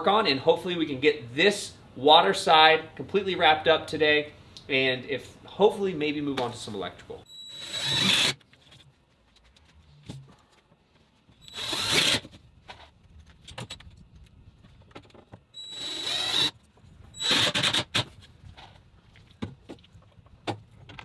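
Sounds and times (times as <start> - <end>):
cordless drill driving screws: 7.4 - 8.4, 11.4 - 12.3, 15.6 - 16.5, 17.2 - 18.0.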